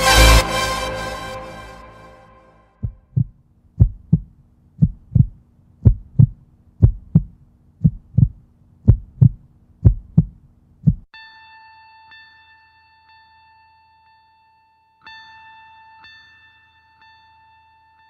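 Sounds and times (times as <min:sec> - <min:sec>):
heartbeat thumps: 0:02.8 - 0:11.1.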